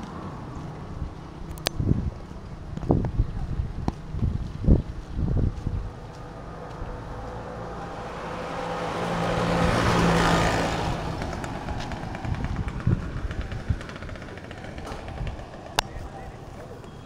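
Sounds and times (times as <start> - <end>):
vehicle passing by: 0.0 - 16.9.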